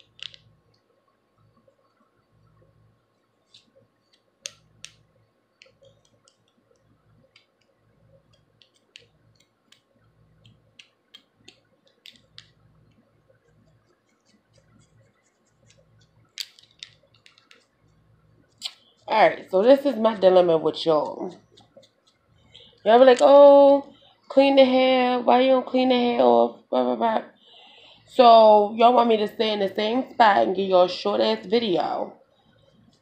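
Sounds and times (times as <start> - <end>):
comb and fingernails scratching scalp: 13.4 - 16.2, 20.8 - 22.3.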